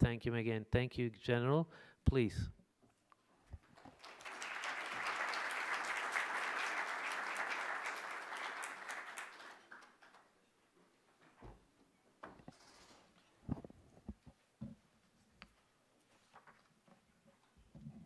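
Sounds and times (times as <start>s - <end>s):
audience applauding: 3.6s - 10.3s.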